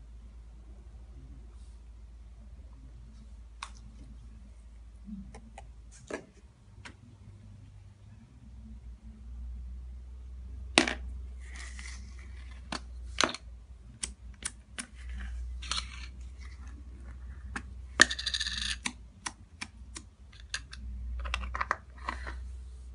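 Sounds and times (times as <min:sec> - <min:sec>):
plastic tubs clicking on tiles: 0:17.5 - 0:22.4.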